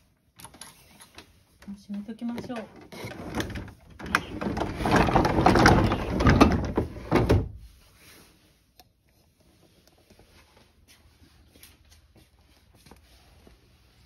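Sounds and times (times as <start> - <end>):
wooden sliding door rattling: 3.0 - 7.6.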